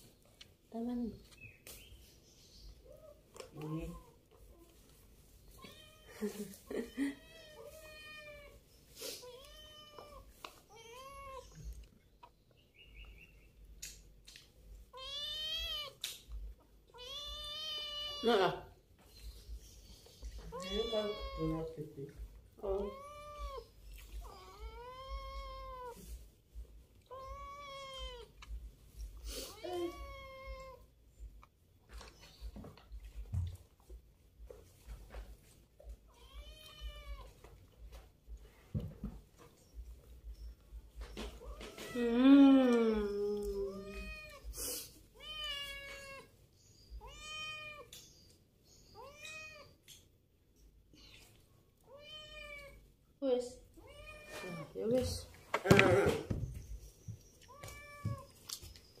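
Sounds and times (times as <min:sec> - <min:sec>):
cat meowing: 0:14.9 - 0:16.0, 0:16.9 - 0:18.6, 0:20.4 - 0:21.8, 0:22.6 - 0:26.2, 0:27.1 - 0:28.4, 0:29.5 - 0:30.9, 0:36.1 - 0:37.4, 0:43.7 - 0:44.5, 0:45.1 - 0:46.3, 0:47.0 - 0:47.9, 0:48.9 - 0:49.8, 0:51.9 - 0:52.8, 0:57.5 - 0:58.4.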